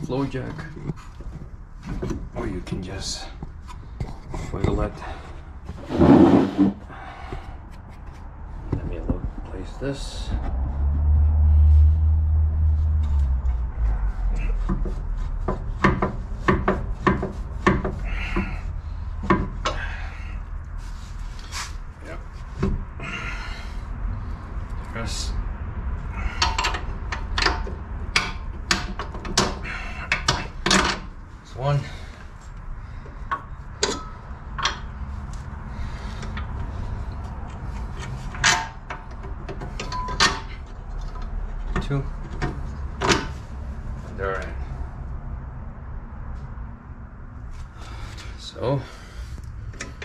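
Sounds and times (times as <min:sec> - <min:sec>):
metal scrape: 0:05.7 - 0:06.8.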